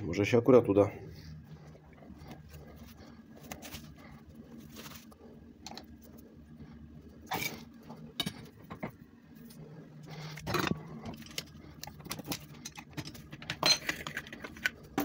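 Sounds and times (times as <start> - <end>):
low steady hum: 0.0 - 15.0
tools rustling and knocking on workbench: 10.3 - 15.0.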